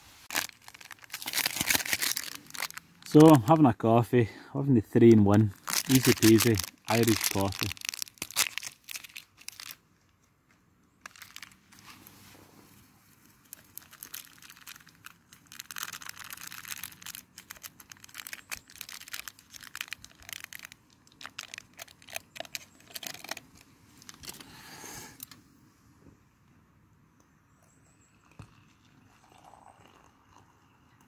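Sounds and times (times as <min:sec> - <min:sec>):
plastic sachet crinkling: 0:00.2 - 0:03.6, 0:05.3 - 0:09.8, 0:11.0 - 0:12.1, 0:13.2 - 0:24.6.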